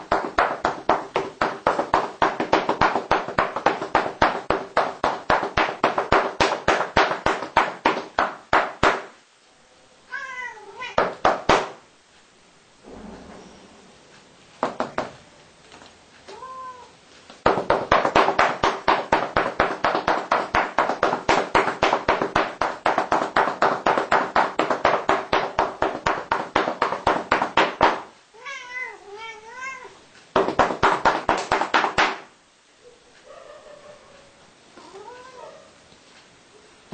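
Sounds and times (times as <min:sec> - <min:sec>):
cat meowing: 0:10.1 - 0:11.0, 0:16.3 - 0:17.0, 0:28.4 - 0:30.0, 0:34.8 - 0:35.8.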